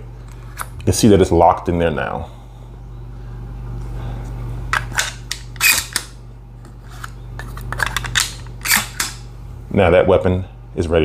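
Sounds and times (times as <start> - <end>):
steady low hum: 0.0 - 11.0
shotgun loading clicks: 7.7 - 9.2.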